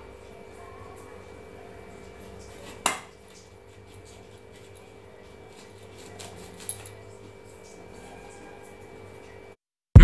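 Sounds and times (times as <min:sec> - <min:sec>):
knife scraping and cutting yam: 0:03.7 - 0:07.0.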